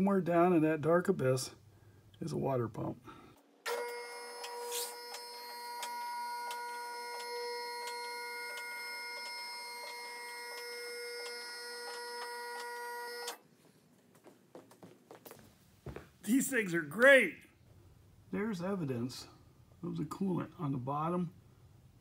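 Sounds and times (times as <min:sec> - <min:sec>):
hydraulic motor whine: 0:03.7 - 0:13.4.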